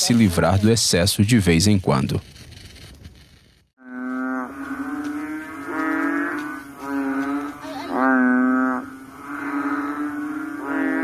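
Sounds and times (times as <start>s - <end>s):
frog calling: 3.8s - 11.0s.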